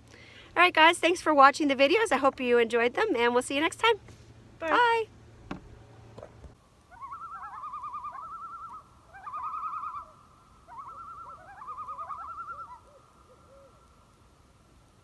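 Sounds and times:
coyotes howling and yipping: 6.8s - 14.0s.

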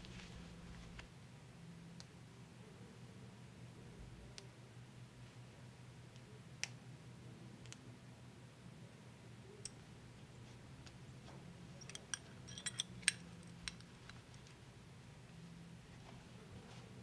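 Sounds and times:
faint low hum: 0.0s - 17.0s
belt buckle clicking: 11.8s - 14.5s.

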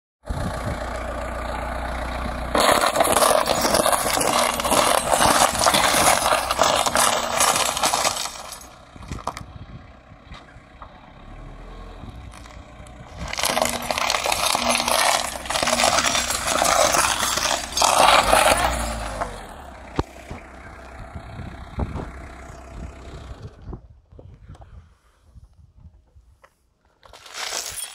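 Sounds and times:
van engine running: 0.2s - 24.0s
plastic and glass crunching: 2.5s - 9.5s, 12.3s - 20.4s, 27.0s - 27.9s.

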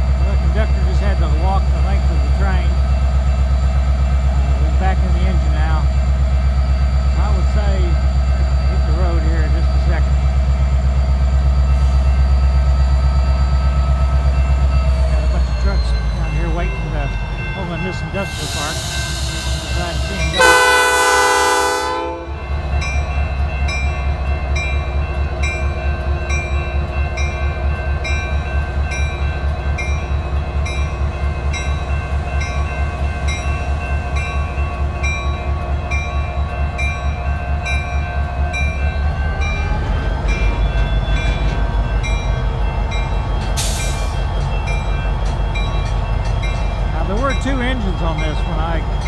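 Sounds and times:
diesel locomotive engine running: 0.0s - 49.0s
locomotive horn blast: 20.3s - 22.4s.

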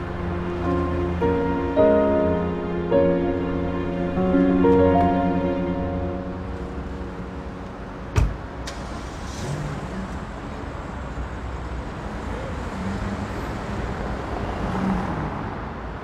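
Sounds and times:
car idling and pulling away: 0.0s - 14.3s
street traffic: 0.0s - 16.0s
car door shutting: 8.1s - 9.4s.

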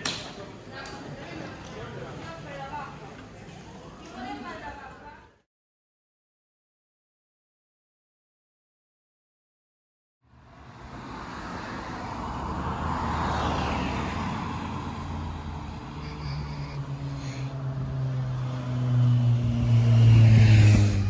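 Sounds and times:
cars driving past: 10.3s - 21.0s
vehicle engine humming: 10.3s - 21.0s.

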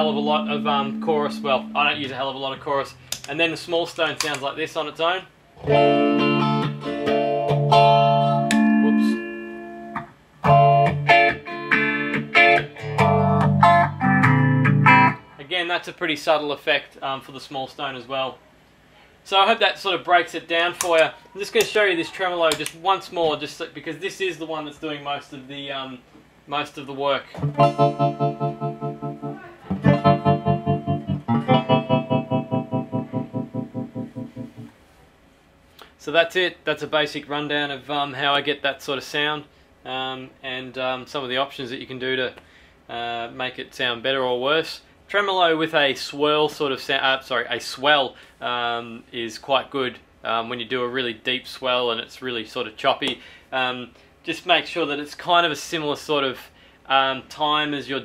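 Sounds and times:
electric guitar chords strummed: 0.0s - 2.2s, 5.6s - 15.4s, 27.4s - 34.7s.

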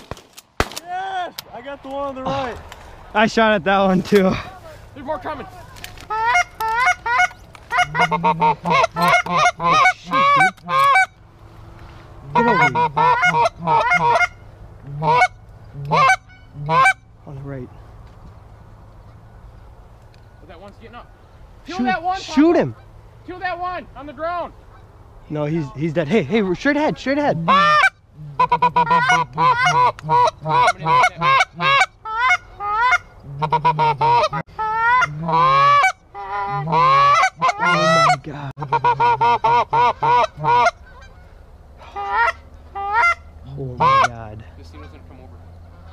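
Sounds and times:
goose honking and clucking: 4.1s - 11.2s, 12.2s - 17.1s, 26.7s - 45.9s.

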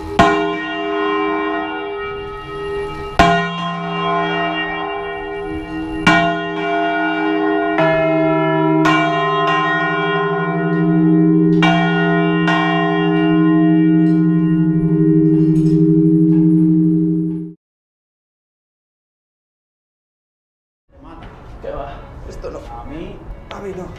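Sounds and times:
large church bell ringing: 0.0s - 17.6s.

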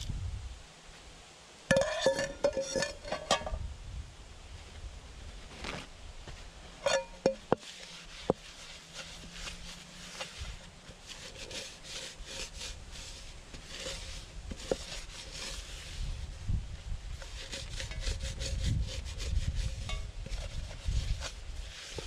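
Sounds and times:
pan bumping when handled: 1.7s - 3.6s, 6.8s - 8.4s
paper towel scrubbing a pan: 6.9s - 16.4s, 17.1s - 22.0s.

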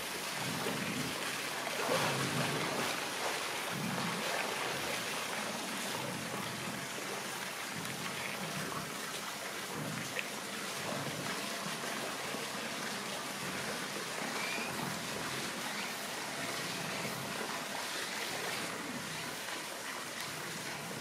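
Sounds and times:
water rushing and trickling: 0.0s - 21.0s.

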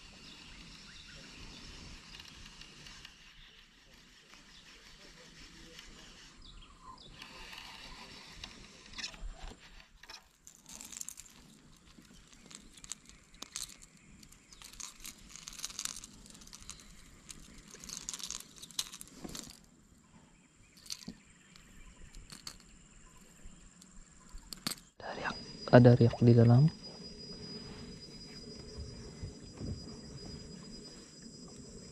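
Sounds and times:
fishing reel handling rustles and clicks: 8.4s - 19.7s, 20.7s - 22.7s.

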